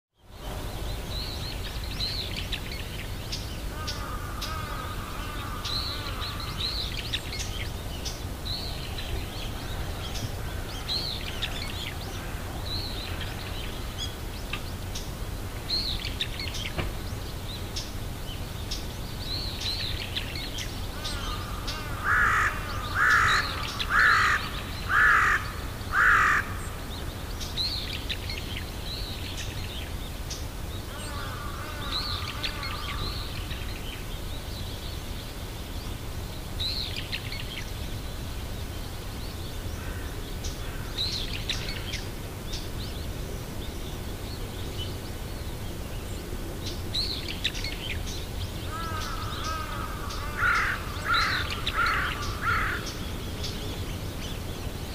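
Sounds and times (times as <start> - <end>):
small birds chirping: 0.1 - 54.9
large bird harsh calls: 3.6 - 7.6, 20.9 - 27.0, 30.8 - 33.6, 48.6 - 53.2.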